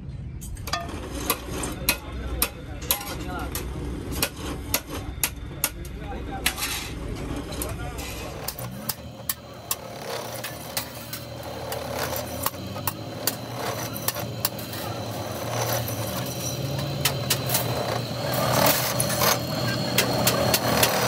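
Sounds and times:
drill press motor hum: 7.0s - 21.0s.

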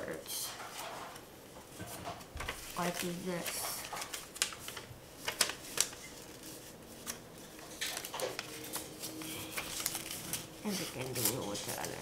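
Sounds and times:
paper rustling and crinkling: 0.4s - 12.0s.

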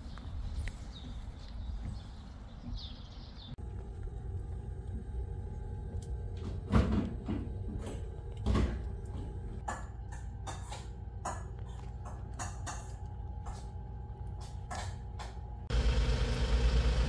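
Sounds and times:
sharp knocks and crackles: 6.2s - 15.7s.

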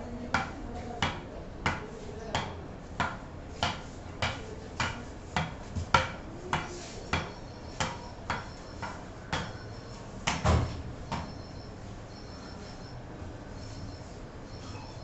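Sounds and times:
ball bouncing on wooden bat: 0.3s - 9.6s, 10.2s - 11.4s.

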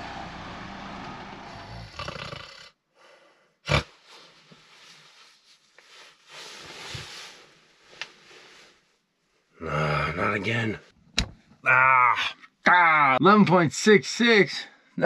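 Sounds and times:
man breathing sleepily: 1.5s - 5.1s
faint shuffling: 4.0s - 9.5s.

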